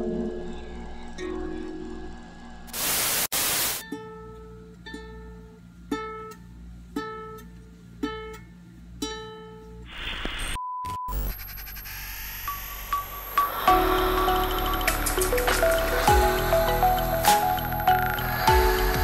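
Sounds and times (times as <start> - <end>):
burst of static: 2.7 - 3.8, 9.9 - 16.2
electronic beep: 10.4 - 18.8.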